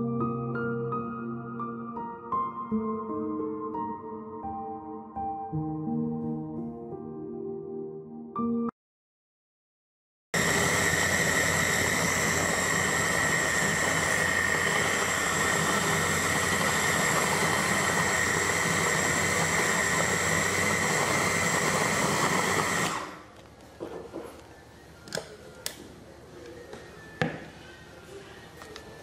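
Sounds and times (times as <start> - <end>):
blender motor whining: 10.4 - 23.3.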